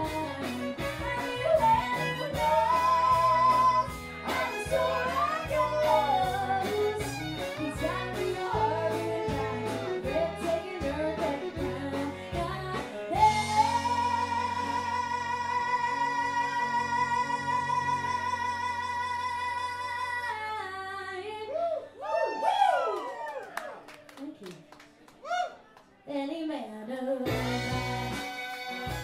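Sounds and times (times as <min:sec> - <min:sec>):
live band with guitar: 0:00.0 - 0:16.2, 0:27.3 - 0:29.0
woman singing into microphone: 0:00.0 - 0:21.8.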